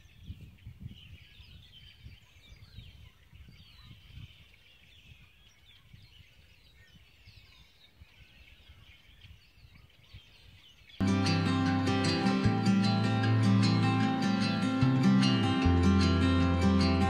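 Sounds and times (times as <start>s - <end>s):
small birds chirping: 0.0s - 17.0s
acoustic guitar music: 11.0s - 17.0s.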